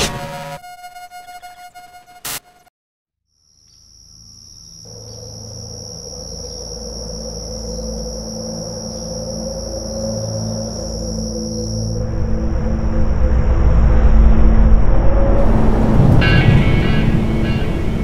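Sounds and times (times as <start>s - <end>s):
high cricket-like tone: 3.3s - 13.7s
low drone: 4.9s - 18.0s.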